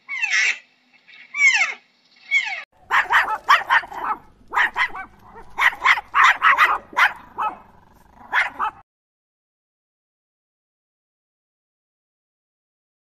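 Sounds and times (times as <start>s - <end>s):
dog barking rapidly: 2.8s - 8.8s.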